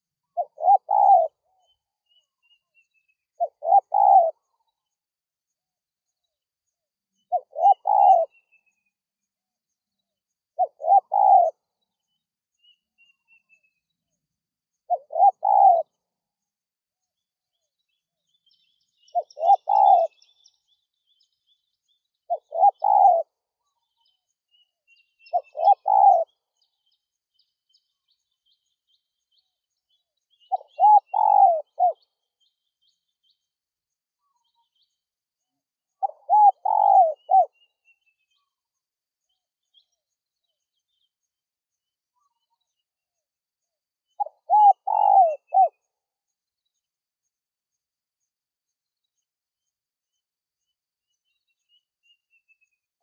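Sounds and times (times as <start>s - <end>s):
small birds chirping: 0.0s - 53.0s
dove cooing: 0.3s - 1.4s, 3.4s - 4.5s, 7.3s - 8.4s, 10.6s - 11.6s, 14.9s - 16.0s, 19.1s - 20.2s, 22.3s - 23.3s, 25.3s - 26.3s, 30.5s - 32.0s, 36.0s - 37.5s, 44.2s - 45.8s.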